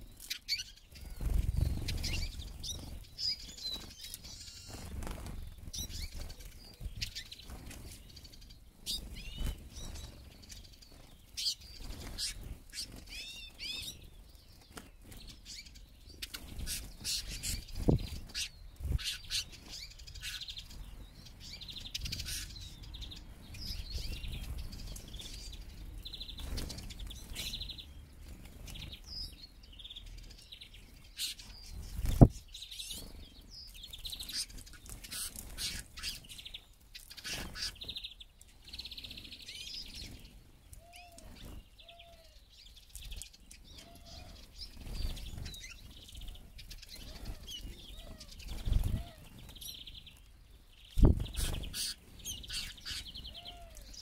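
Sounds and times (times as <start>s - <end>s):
wings flapping: 0.9s - 8.0s, 8.9s - 14.0s, 26.4s - 27.5s, 31.8s - 32.4s, 34.1s - 36.2s, 44.7s - 49.7s, 51.0s - 53.0s.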